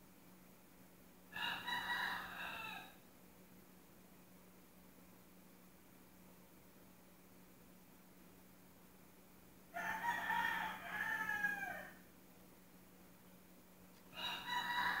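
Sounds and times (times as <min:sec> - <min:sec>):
faint low hum: 0:00.0 - 0:15.0
rooster crowing: 0:01.3 - 0:03.0, 0:09.7 - 0:12.1, 0:14.1 - 0:15.0.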